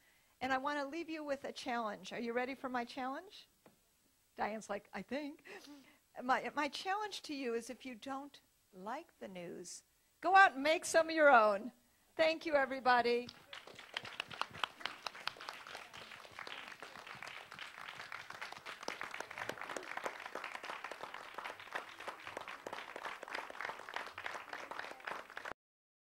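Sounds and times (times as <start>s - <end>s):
audience applauding: 13.3s - 25.6s.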